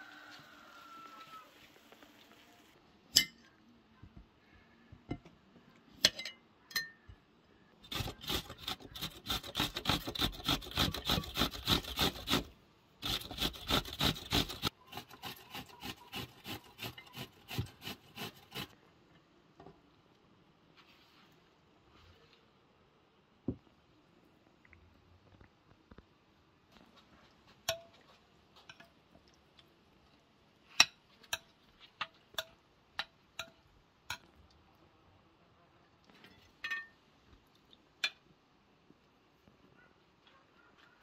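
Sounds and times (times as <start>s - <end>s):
cucumber grating on metal grater: 7.9s - 18.7s.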